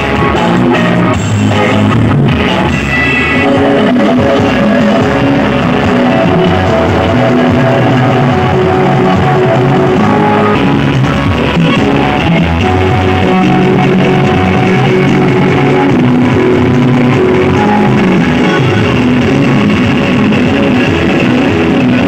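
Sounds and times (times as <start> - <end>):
loud rock music with guitar: 0.0 - 22.0.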